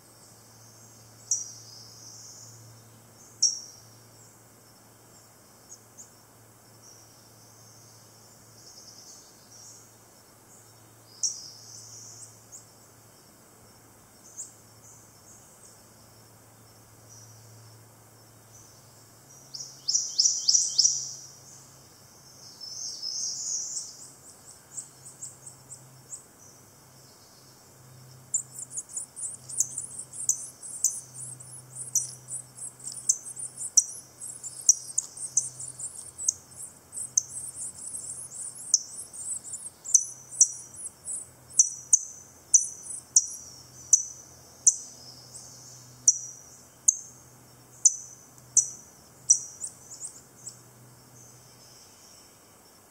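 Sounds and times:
bird singing ringing song: 0.2 - 4.4, 6.8 - 12.8, 18.4 - 52.4
high thin bird chittering: 19.6 - 21.2, 28.3 - 46.3.

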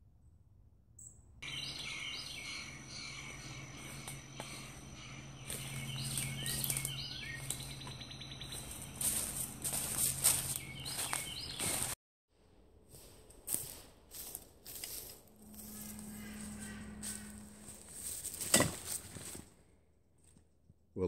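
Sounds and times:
bird trill: 1.0 - 11.9, 15.3 - 18.3
low steady hum: 1.2 - 10.4, 12.9 - 19.7
birds chirping and calling: 1.4 - 11.9, 15.4 - 18.4
footsteps crunching through dry leaves: 1.5 - 12.0, 12.8 - 19.5.

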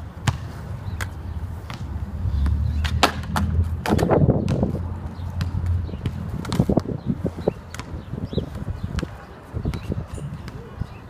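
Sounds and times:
skateboard wheels rolling: 1.5 - 7.5.

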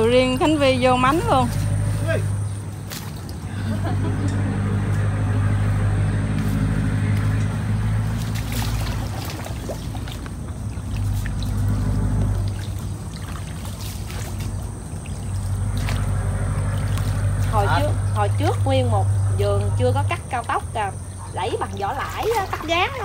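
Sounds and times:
boat engine droning: 0.0 - 23.0.

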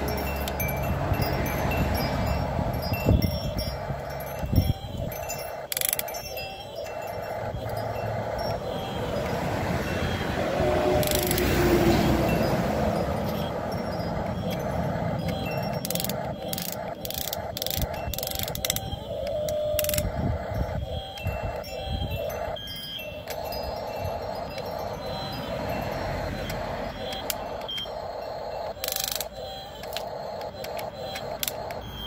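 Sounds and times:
electric motors whirring: 0.0 - 32.0
sharp clicks and scrapes: 11.0 - 11.8, 14.2 - 20.2, 28.7 - 32.0.

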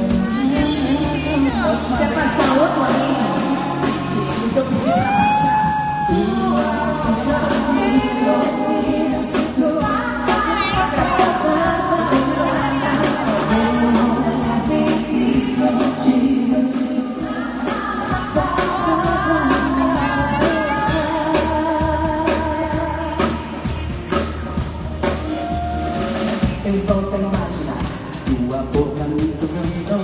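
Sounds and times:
drums beat: 0.0 - 16.8, 17.7 - 30.0
women singing pop: 0.0 - 24.0
bass guitar: 0.0 - 30.0.

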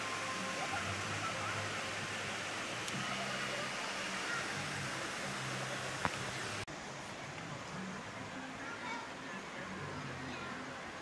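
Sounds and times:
faint voices: 0.0 - 11.0.

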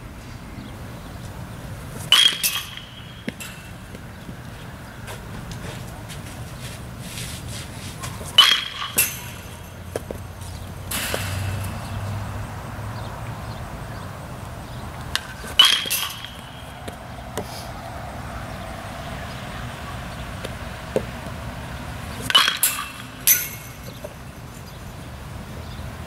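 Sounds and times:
baseball bat hitting ball: 2.0 - 4.4, 8.1 - 12.4, 15.1 - 17.8, 20.0 - 24.4.

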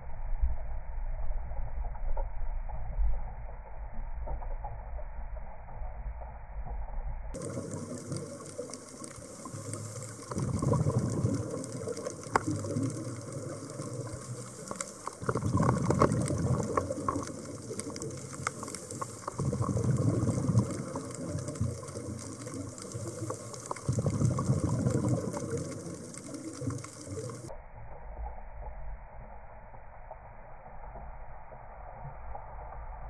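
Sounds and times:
underwater bubbles rushing: 6.7 - 27.5.

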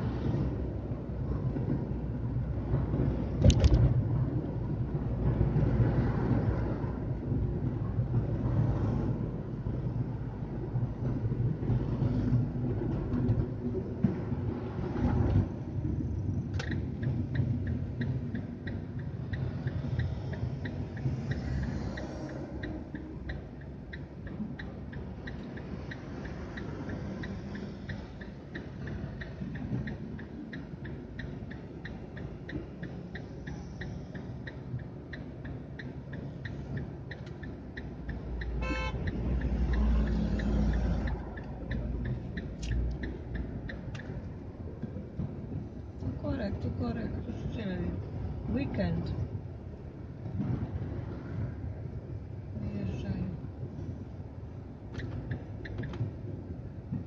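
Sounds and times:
car cabin road rumble: 0.0 - 57.0
turn signal ticking: 15.4 - 57.0.

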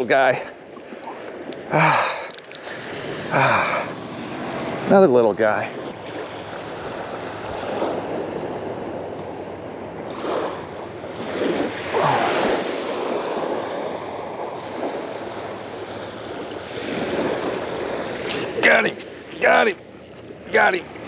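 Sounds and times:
wind buffeting microphone: 3.9 - 21.0
surf washing onto sand: 10.1 - 21.0.

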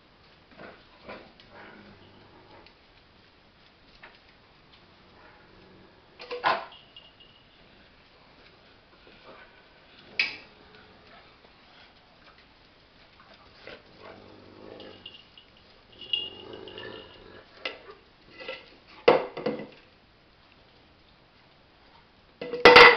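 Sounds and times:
dog bowl knocking and clattering: 6.2 - 6.9, 18.5 - 19.8, 22.4 - 22.9.

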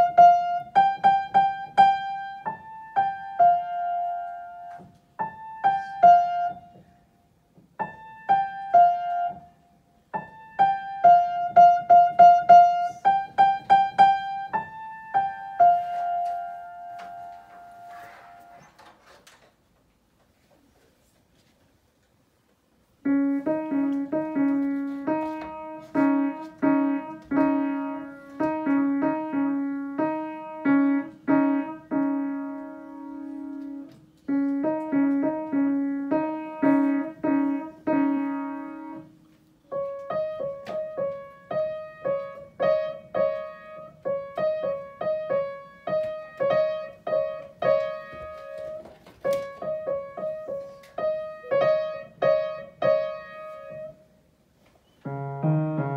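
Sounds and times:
upright piano slow melody: 0.0 - 18.8, 22.8 - 55.9.

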